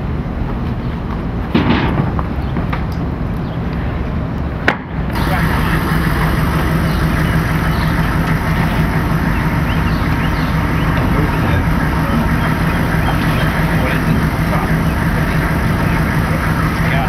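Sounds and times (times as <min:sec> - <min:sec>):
engine idling: 0:05.1 - 0:17.0.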